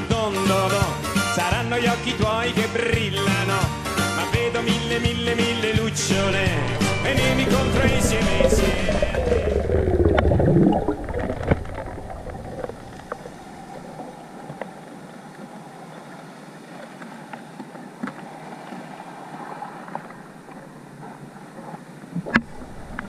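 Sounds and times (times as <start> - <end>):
low underwater wash: 5.9 - 23.0
song with falling pitch slide: 6.0 - 11.2
sharp underwater clicks: 6.2 - 14.8, 19.9 - 23.0.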